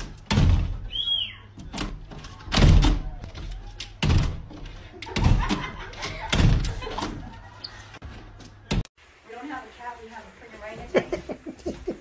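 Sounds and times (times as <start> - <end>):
door rattling and thumping: 0.0 - 0.9, 1.6 - 7.4.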